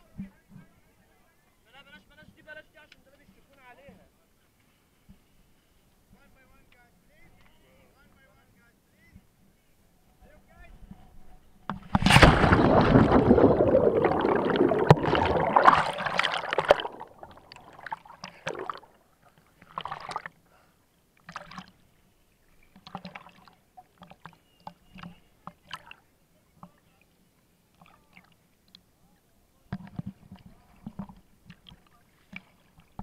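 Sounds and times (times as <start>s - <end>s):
diver splashing into water: 11.9s - 19.0s
waves slapping and gurgling: 11.9s - 19.0s.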